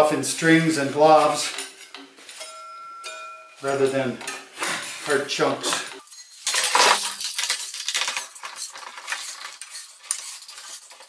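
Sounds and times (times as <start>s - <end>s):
scraping and rattling: 6.0s - 11.0s.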